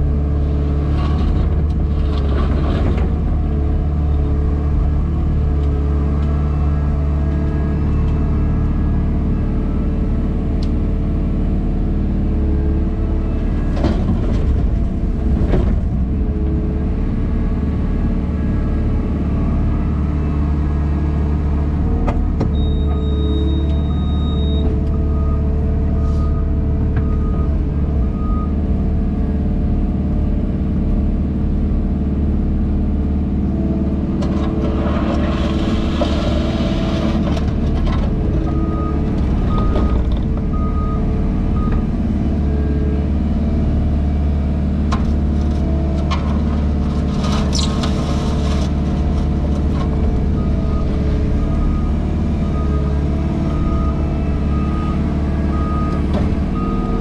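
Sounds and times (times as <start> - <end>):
diesel engine running under load: 0.0 - 57.0
short beeps: 22.5 - 25.4.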